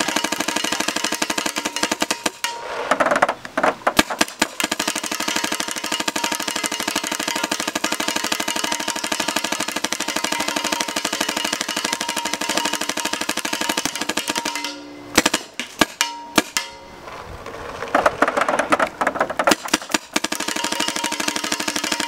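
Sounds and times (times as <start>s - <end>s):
paintball marker firing: 0.0s - 16.8s, 18.0s - 22.0s.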